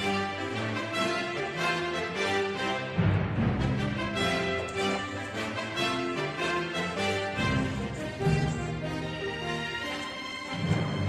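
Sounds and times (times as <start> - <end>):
background music with held notes: 0.0 - 11.0.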